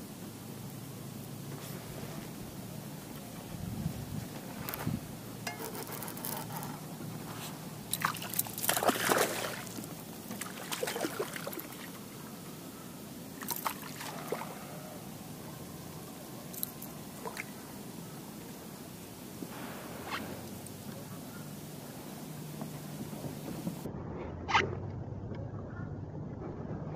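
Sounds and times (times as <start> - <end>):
fish splashing at water surface: 7.9 - 12.2, 13.3 - 15.0, 16.5 - 17.7.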